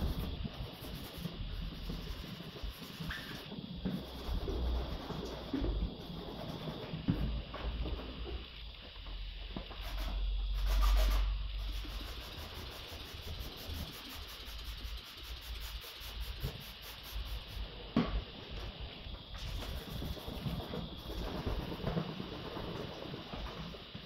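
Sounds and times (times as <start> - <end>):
wet sandpaper rubbing: 0.0 - 5.5, 9.8 - 17.6, 19.4 - 20.7.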